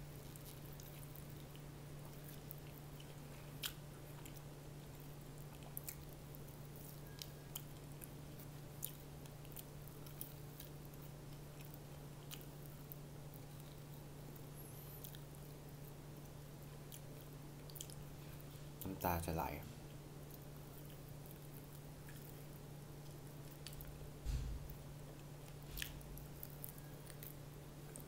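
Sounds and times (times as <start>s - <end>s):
person chewing crunchy food: 0.0s - 18.9s, 19.9s - 28.0s
low hum: 23.6s - 27.2s.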